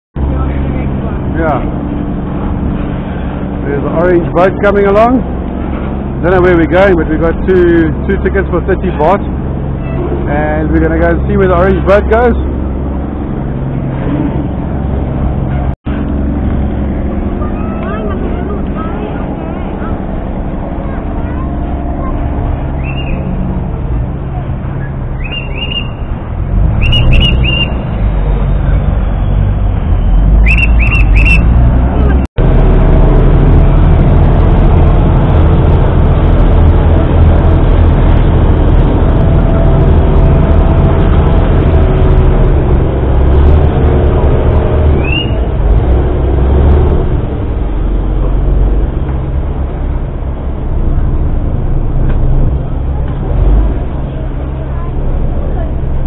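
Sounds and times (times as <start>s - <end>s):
boat engine rumbling: 0.1s - 56.0s
high whistle blasts: 22.8s - 23.3s, 24.8s - 26.1s, 26.8s - 31.6s, 45.0s - 45.4s.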